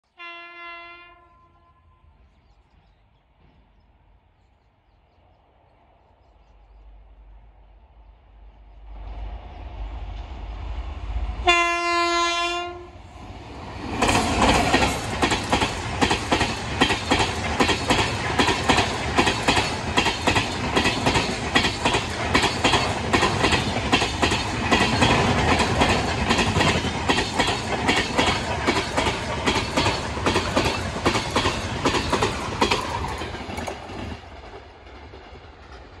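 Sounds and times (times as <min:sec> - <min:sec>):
train horn blast: 0:00.2 - 0:02.2, 0:11.4 - 0:13.0
train rumble: 0:01.0 - 0:36.0
train wheels clickety-clack: 0:13.5 - 0:36.0.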